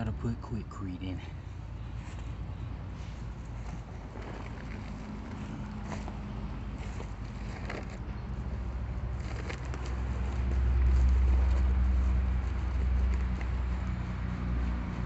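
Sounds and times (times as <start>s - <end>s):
paper sack rustling and crinkling: 3.0s - 15.0s.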